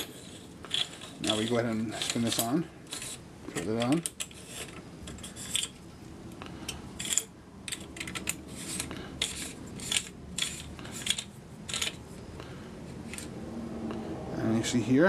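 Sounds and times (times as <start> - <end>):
metallic clicks and scrapes: 0.0 - 5.8, 6.7 - 12.2, 13.0 - 13.3.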